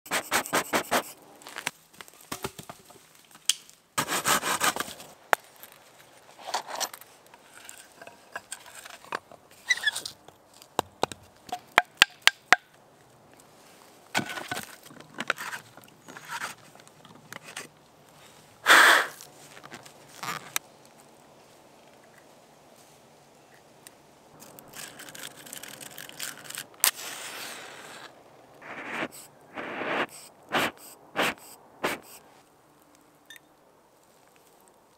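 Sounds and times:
person blowing sawdust: 0.1s - 1.2s, 18.6s - 19.2s, 26.9s - 32.2s.

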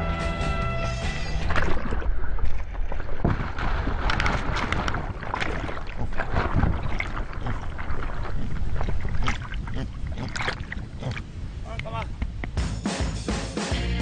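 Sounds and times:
sea water rushing and splashing: 1.3s - 12.3s
wind buffeting microphone: 1.9s - 12.6s.

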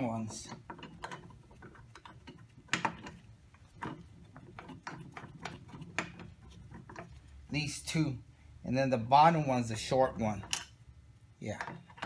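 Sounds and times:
light metal clicks and knocks: 0.0s - 7.3s.

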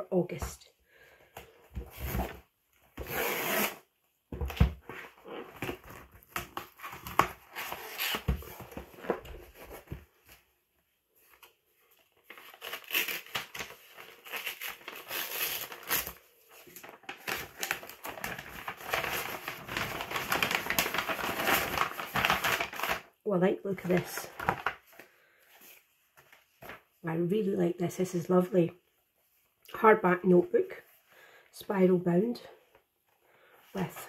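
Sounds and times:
tissue paper rustling: 11.2s - 23.1s.

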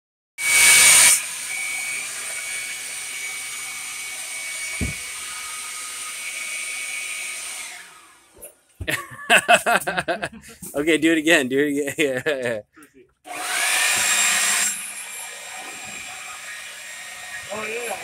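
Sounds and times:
leaf blower whining: 0.4s - 8.4s, 13.3s - 18.0s
low thump: 4.8s - 5.0s.

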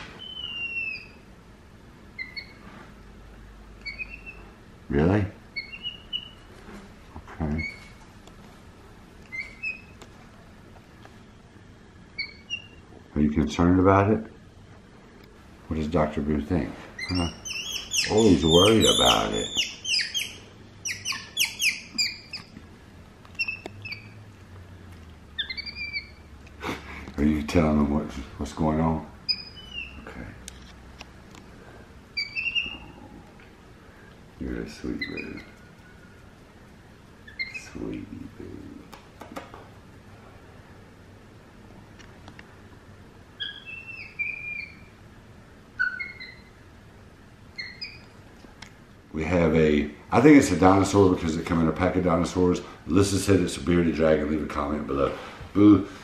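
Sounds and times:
monkey squeaky chirps: 0.2s - 1.3s, 2.2s - 2.6s, 3.8s - 4.6s, 5.5s - 6.5s, 9.3s - 10.0s, 12.1s - 12.8s, 17.0s - 22.6s, 23.4s - 24.2s, 25.4s - 26.3s, 29.2s - 30.0s, 32.2s - 33.0s, 35.0s - 35.6s, 37.2s - 37.8s, 43.4s - 45.0s, 45.8s - 46.6s, 47.5s - 48.2s.

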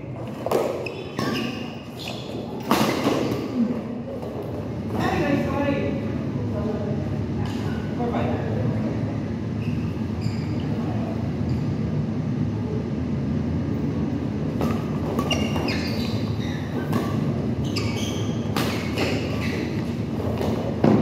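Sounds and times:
sneakers squeaking on court floor: 0.2s - 5.2s, 9.6s - 10.9s, 14.6s - 21.0s
low rumble in hall: 1.8s - 15.2s
racket hitting shuttlecock: 18.2s - 21.0s.

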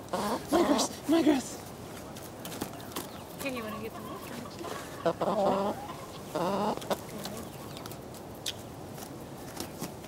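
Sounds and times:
hens clucking: 0.0s - 8.6s.

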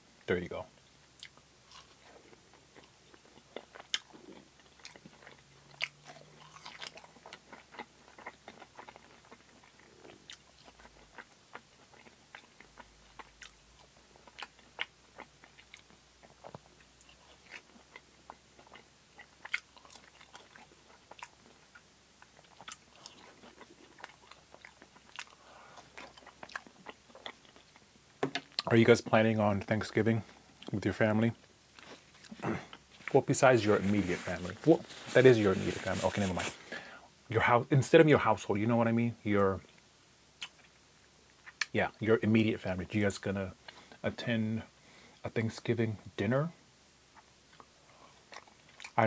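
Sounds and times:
person chewing crunchy fries: 1.2s - 27.9s, 31.7s - 36.8s, 47.2s - 49.0s.

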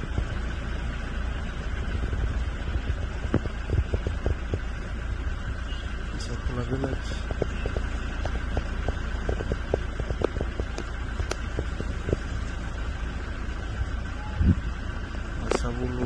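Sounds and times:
wind buffeting microphone: 1.8s - 5.6s, 6.4s - 12.5s, 13.8s - 14.8s.

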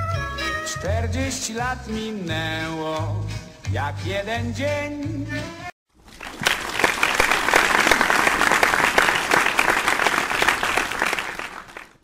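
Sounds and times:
crowd applauding: 6.0s - 12.0s.

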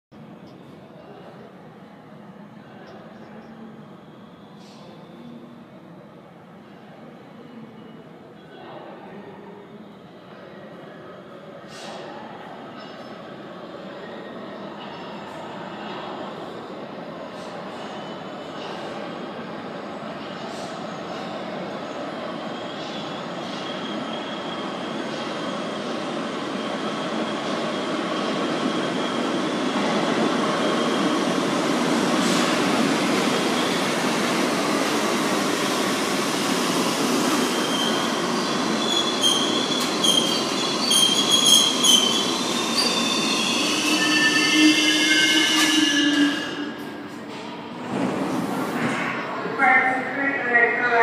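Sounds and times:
subway train rumble: 0.1s - 51.0s
train wheels squealing: 3.6s - 5.5s, 12.7s - 26.0s, 37.4s - 47.0s.

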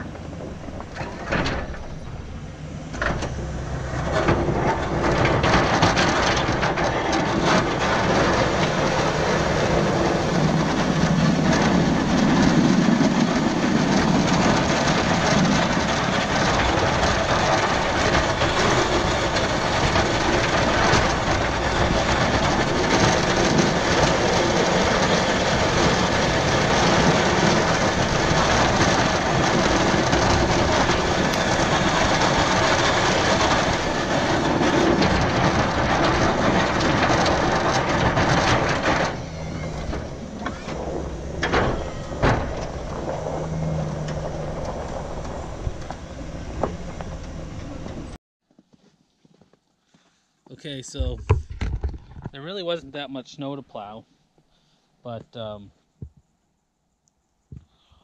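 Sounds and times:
truck engine running: 0.0s - 48.2s
snow plow blade scraping snow: 3.0s - 48.2s.

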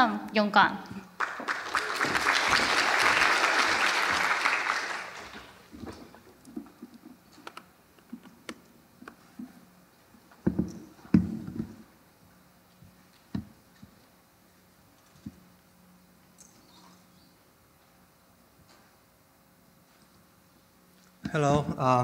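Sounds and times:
audience applauding: 1.2s - 5.7s.

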